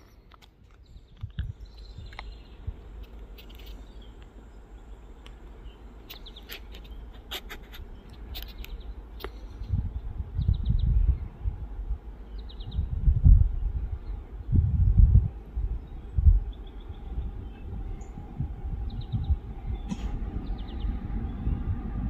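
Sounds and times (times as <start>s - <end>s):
birds chirping: 0.0s - 11.5s, 12.2s - 14.5s, 15.3s - 21.9s
loud low rumbling: 9.6s - 22.0s.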